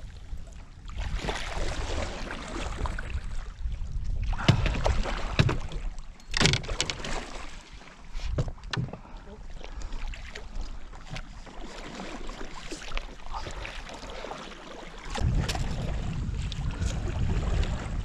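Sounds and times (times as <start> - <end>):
water splashing against a canoe: 0.0 - 18.0
knocks against a hull: 4.4 - 7.1, 8.3 - 9.1.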